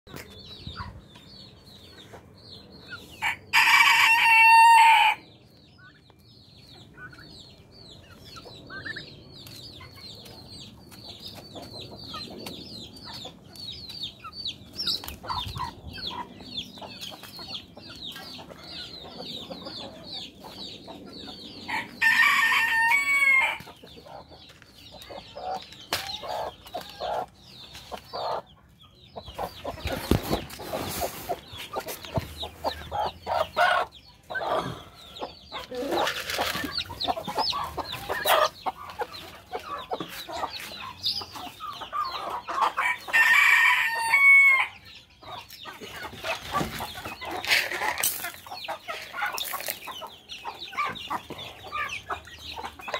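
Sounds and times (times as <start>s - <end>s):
chicks peeping: 0.1s - 52.9s
rooster crowing: 3.2s - 5.2s, 21.7s - 23.6s, 42.8s - 44.8s
hens clucking: 6.6s - 52.9s.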